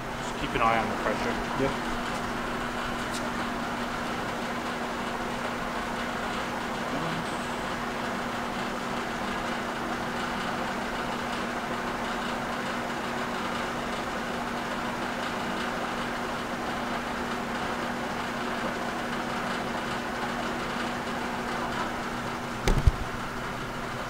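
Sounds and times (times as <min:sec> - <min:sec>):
machine hum: 0:00.0 - 0:14.6.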